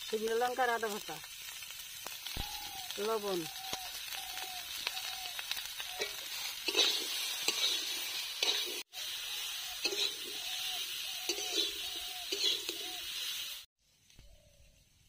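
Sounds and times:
vegetables sizzling in oil: 0:00.0 - 0:15.0
metal spatula scraping a pan: 0:06.0 - 0:08.8, 0:09.8 - 0:12.9.

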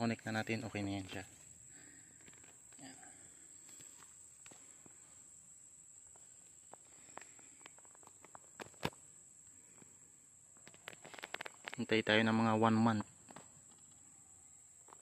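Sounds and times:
light clicks and rustles: 0:06.1 - 0:09.0, 0:10.6 - 0:11.9.

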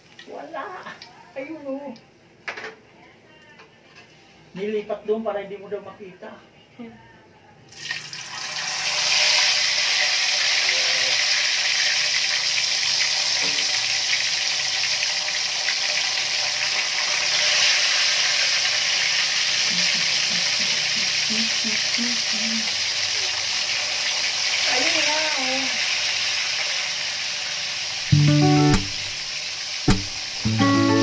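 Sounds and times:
fish sizzling in hot oil: 0:07.7 - 0:31.0.

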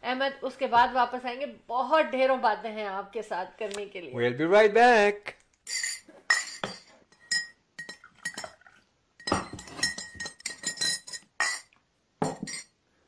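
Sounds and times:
teaspoon clinking against teacup: 0:05.7 - 0:08.6, 0:09.2 - 0:12.7.

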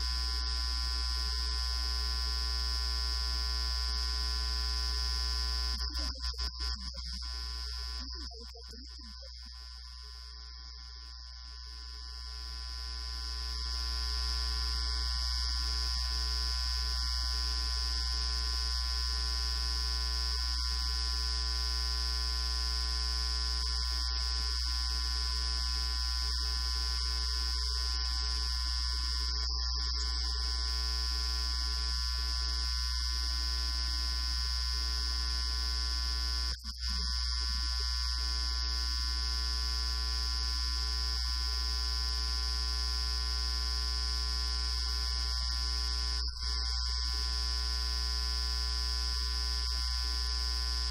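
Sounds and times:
electrical hum and buzz: 0:00.0 - 0:50.9
thin high whine: 0:27.6 - 0:32.0.

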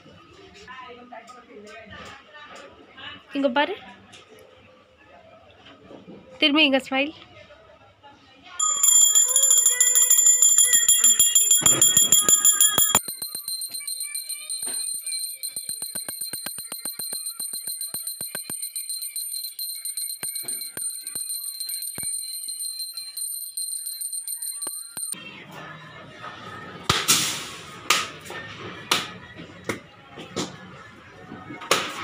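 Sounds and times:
brass hand bell ringing rapidly: 0:08.6 - 0:25.2.

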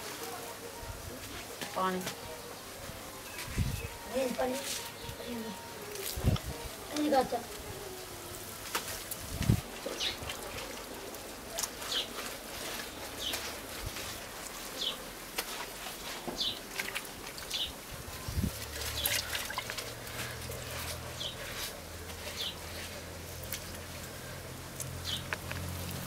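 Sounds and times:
wet mud squelching: 0:15.3 - 0:26.0.

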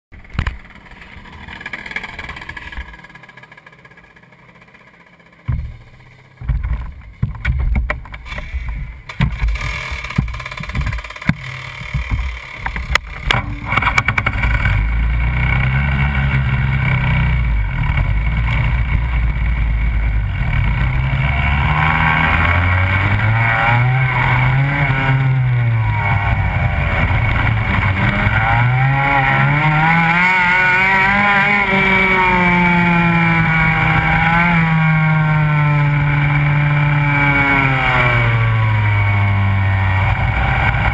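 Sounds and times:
go-kart engine: 0:00.1 - 0:40.9
knocks and bangs: 0:05.4 - 0:14.4.

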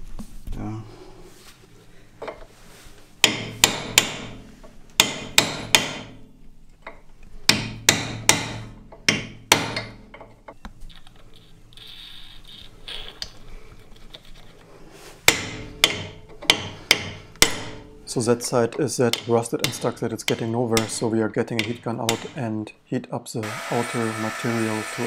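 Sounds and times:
hammer striking metal: 0:03.2 - 0:04.4, 0:05.0 - 0:06.2, 0:07.5 - 0:10.1, 0:15.3 - 0:18.0, 0:19.1 - 0:22.4.

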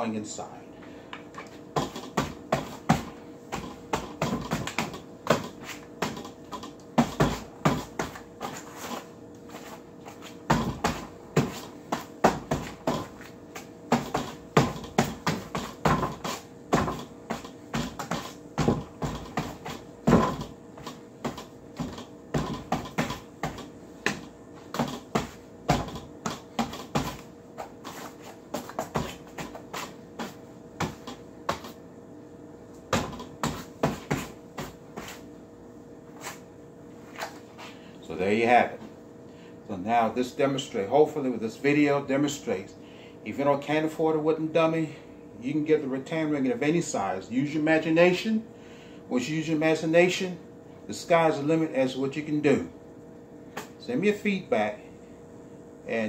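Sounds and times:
rattan ring knocking on arms: 0:13.9 - 0:27.2.

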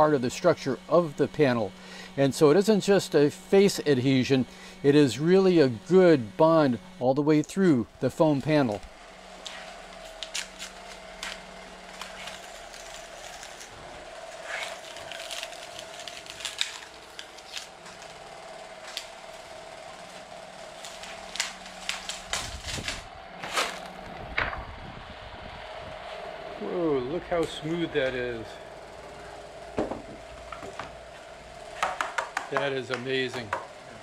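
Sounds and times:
machine hum: 0:00.0 - 0:34.0
tape and plastic peeling: 0:08.6 - 0:24.3
low rumble and knocks: 0:24.2 - 0:25.0, 0:29.8 - 0:31.0.

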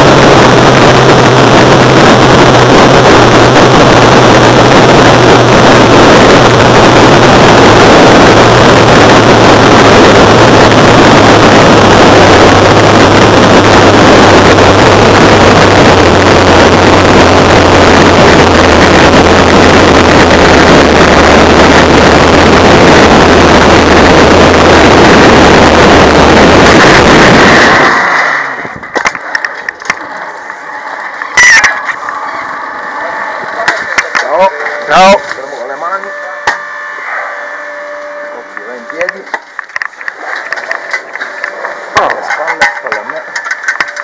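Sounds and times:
wind rushing over microphone: 0:00.0 - 0:30.2
zipline trolley humming on cable: 0:00.0 - 0:42.0.

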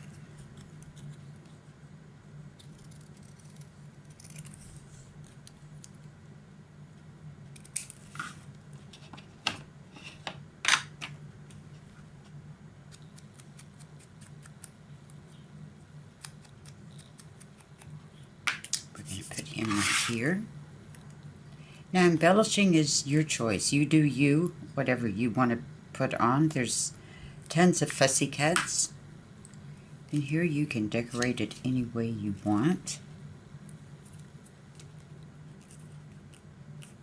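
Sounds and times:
steady low hum: 0:00.0 - 0:37.0
scissors snipping paper: 0:02.6 - 0:06.0, 0:12.9 - 0:14.8, 0:16.2 - 0:18.0.

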